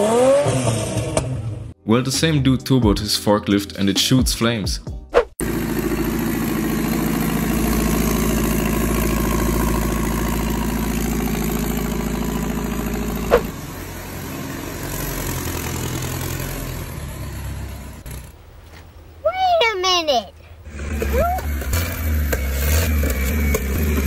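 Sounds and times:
forklift engine idling: 5.4s - 18.4s
engine sharp pop: 13.2s - 13.5s.

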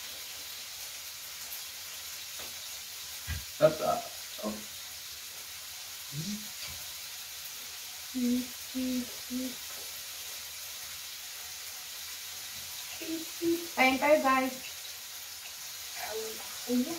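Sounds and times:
food sizzling on a grill: 0.0s - 16.9s
person humming: 6.2s - 6.5s, 8.2s - 9.5s.

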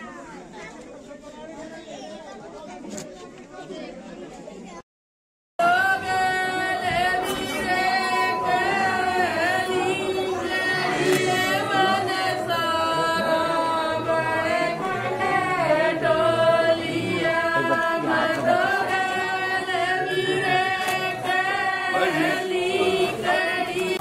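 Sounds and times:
voices singing long gliding notes: 5.6s - 24.0s.

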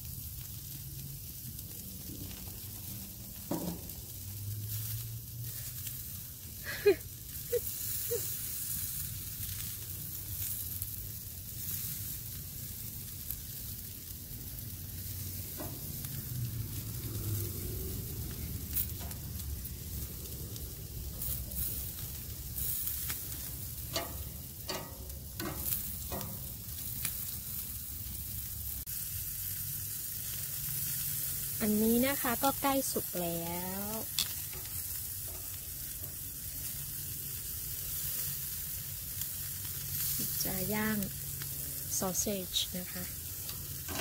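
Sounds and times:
meat sizzling on a grill: 0.0s - 44.0s
low rumble: 0.8s - 5.4s, 13.8s - 28.9s
metal tongs clicking on grate: 23.0s - 27.2s, 34.1s - 36.2s, 43.4s - 44.0s.

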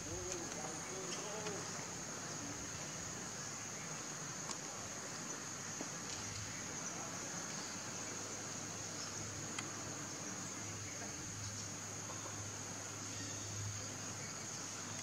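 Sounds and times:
faint ticks: 9.0s - 9.8s.

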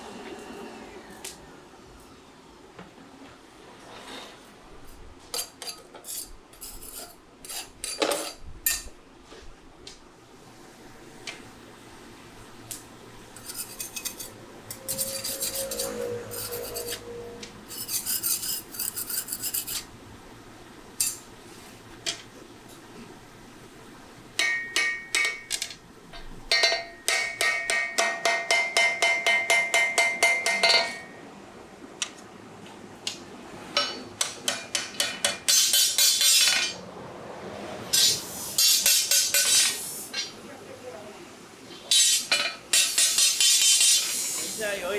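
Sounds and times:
steel and anvil ringing: 14.7s - 17.8s, 24.4s - 25.5s, 26.5s - 31.2s
hammer striking steel on anvil: 24.4s - 25.6s, 26.5s - 31.2s, 33.8s - 36.8s, 37.9s - 40.3s, 41.9s - 44.2s.

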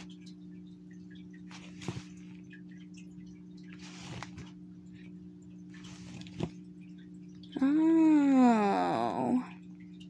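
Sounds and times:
low electrical hum: 0.0s - 10.0s
rustles with soft knocks: 1.5s - 2.4s.

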